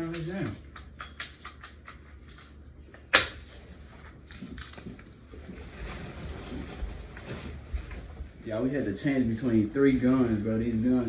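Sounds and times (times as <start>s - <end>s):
bb pistol shot: 3.1s - 3.5s.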